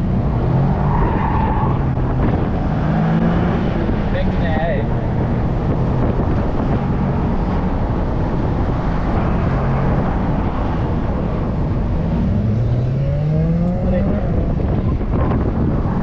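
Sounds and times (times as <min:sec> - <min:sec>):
car engine droning: 0:00.0 - 0:16.0
wind buffeting microphone: 0:00.0 - 0:16.0.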